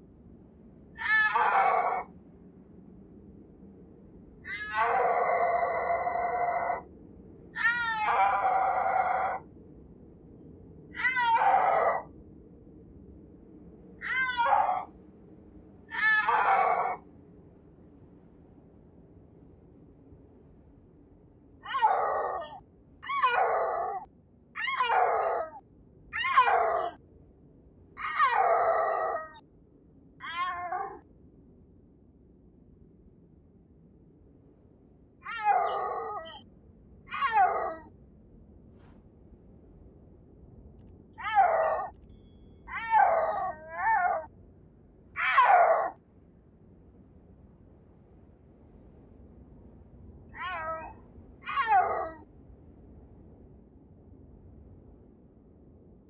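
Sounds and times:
snow leopard yowling: 1.0 - 2.1, 4.5 - 6.9, 7.6 - 9.4, 11.0 - 12.1, 14.0 - 14.9, 15.9 - 17.0, 21.6 - 25.6, 26.2 - 27.0, 28.0 - 29.4, 30.2 - 31.0, 35.2 - 36.4, 37.1 - 37.9, 41.2 - 42.0, 42.7 - 44.3, 45.2 - 46.0, 50.3 - 52.2
cat meowing: 7.6 - 9.4, 14.0 - 14.9, 16.0 - 17.0, 30.2 - 31.0, 37.1 - 37.8, 41.2 - 41.9, 50.4 - 52.2.

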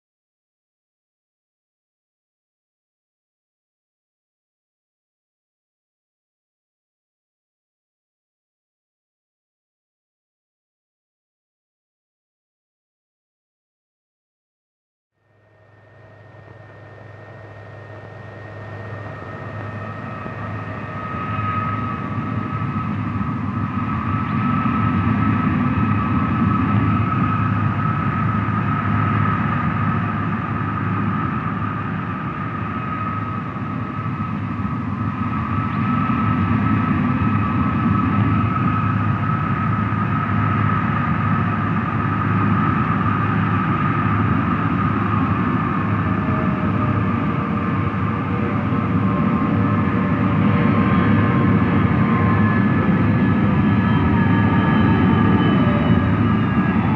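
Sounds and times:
jet engine whine and rumble: 15.2 - 56.9.

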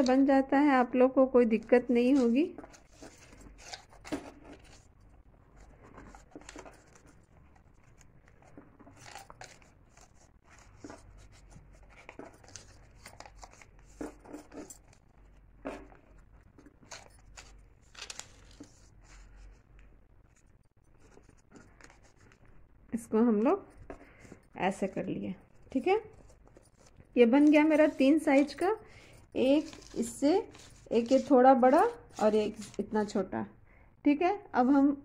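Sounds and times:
paper rustling and crackling: 2.0 - 4.9, 5.6 - 15.0, 15.6 - 19.6, 20.3 - 22.6, 23.4 - 33.2.

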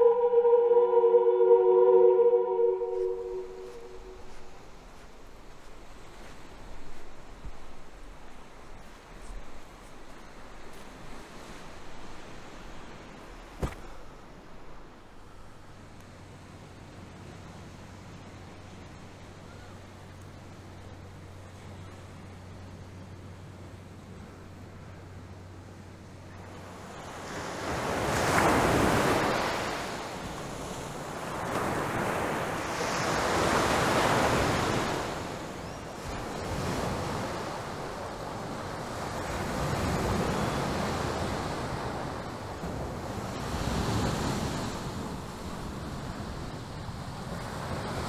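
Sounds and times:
wind: 0.0 - 48.0
sea waves breaking on beach: 26.6 - 48.0.

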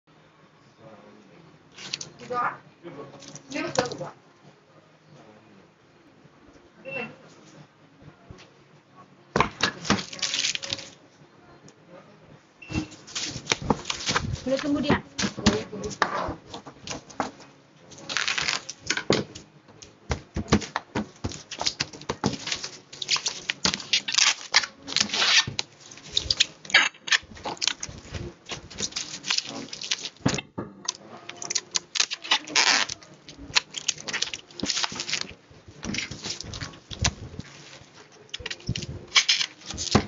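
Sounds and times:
bubble wrap crinkling: 1.7 - 2.3, 9.8 - 11.0, 12.9 - 19.5, 21.1 - 30.3, 31.2 - 40.0
plastic packaging rustling: 9.8 - 11.0, 12.8 - 19.0, 21.2 - 30.3, 31.3 - 40.0.

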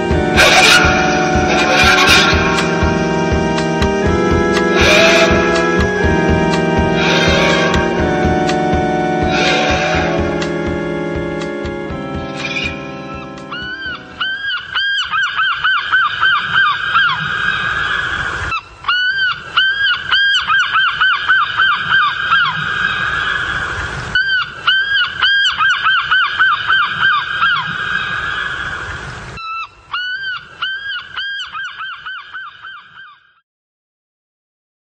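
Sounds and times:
birds honking: 0.0 - 17.3.

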